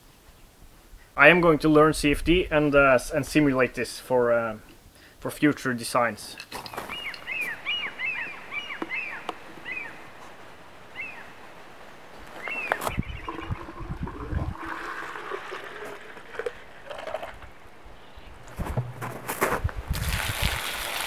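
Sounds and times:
small bird chirping: 6.8s - 10.1s, 10.9s - 11.4s, 12.3s - 13.5s
water pouring into plastic bottle: 13.2s - 17.6s, 19.9s - 21.0s.

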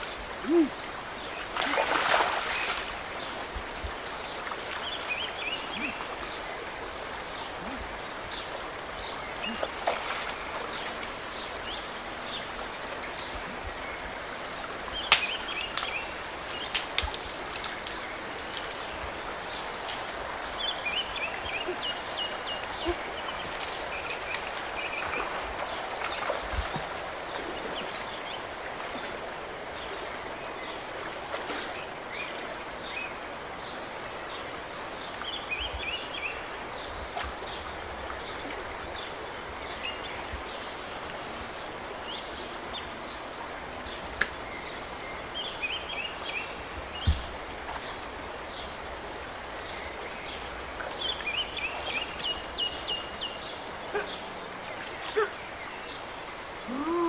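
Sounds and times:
birds chirping: 0.0s - 3.5s, 4.1s - 57.0s
creek water flowing: 0.0s - 57.0s.

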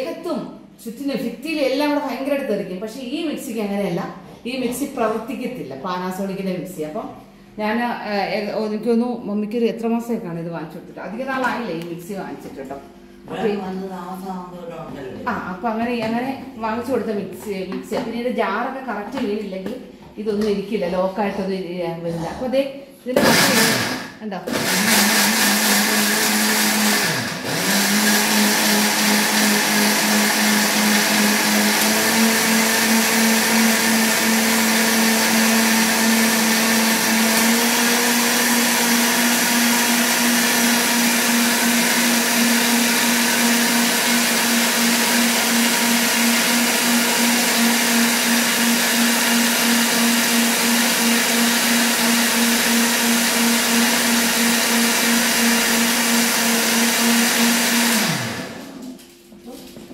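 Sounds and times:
mixer grinder motor running: 23.2s - 59.0s.

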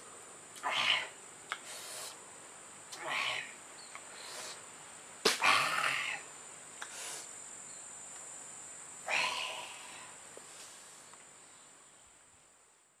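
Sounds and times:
high-pitched insect drone: 5.4s - 6.3s, 6.9s - 10.7s.

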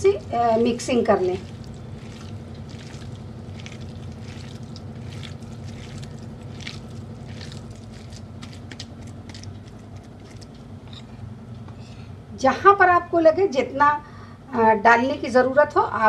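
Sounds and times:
hands kneading wet mixture: 0.0s - 11.2s
steady low hum: 0.0s - 16.0s.

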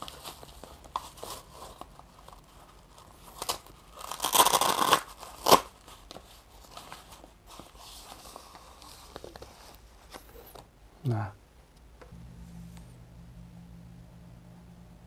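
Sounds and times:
hook-and-loop strap ripping: 3.4s - 5.7s.

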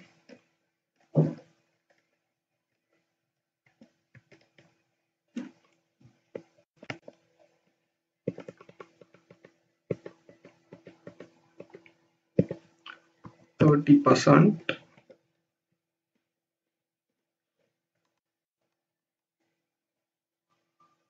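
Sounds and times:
keyboard key presses: 8.3s - 12.6s.

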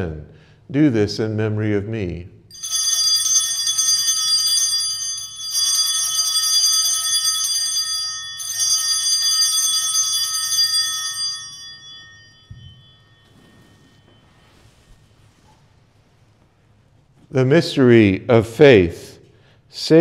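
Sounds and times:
altar bells ringing: 2.5s - 16.5s.

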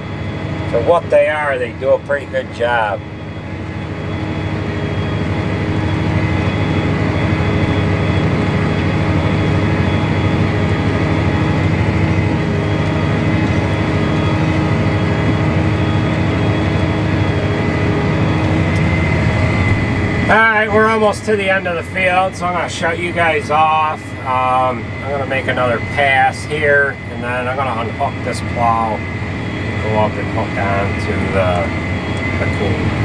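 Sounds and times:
tractor diesel engine droning: 0.0s - 33.0s.

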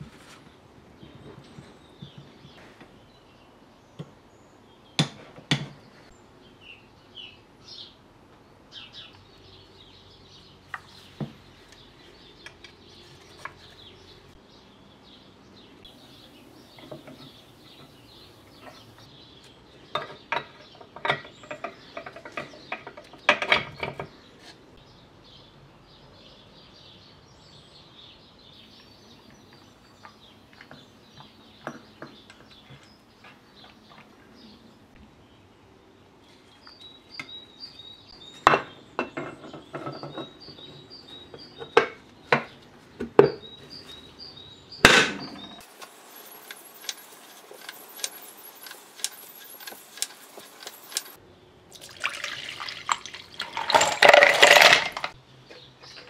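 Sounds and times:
metal parts clinking: 53.4s - 55.2s.

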